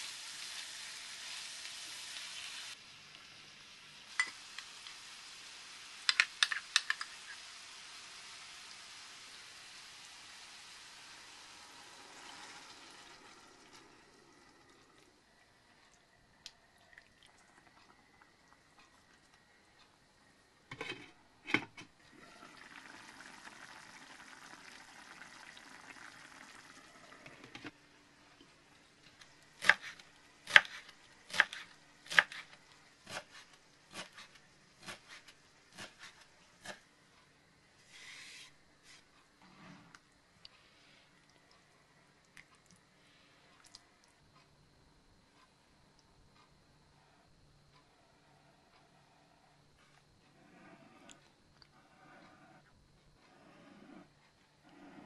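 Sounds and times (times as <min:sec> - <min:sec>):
sauce simmering hiss: 0:00.0 - 0:20.5, 0:22.1 - 0:36.8.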